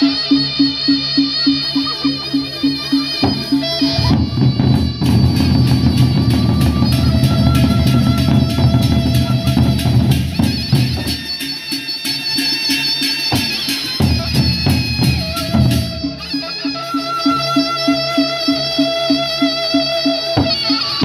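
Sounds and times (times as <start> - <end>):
hand cymbals clashing: 0.0 - 21.0
barrel drums beaten with sticks: 3.2 - 16.2.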